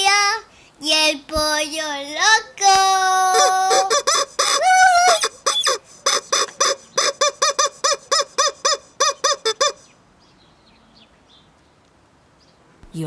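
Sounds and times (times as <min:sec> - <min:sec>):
rubber chicken toy squeaking: 0:03.2 - 0:09.9.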